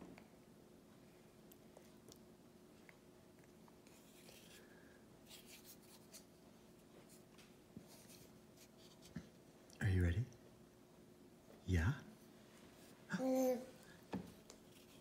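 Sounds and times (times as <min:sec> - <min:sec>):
faint steady hum: 0:00.0 - 0:15.0
soft rustles: 0:14.2 - 0:15.0.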